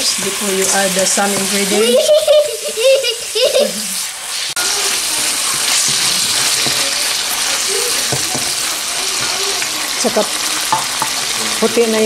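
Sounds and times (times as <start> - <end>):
chicken and onion sizzling in oil: 0.0 - 12.0.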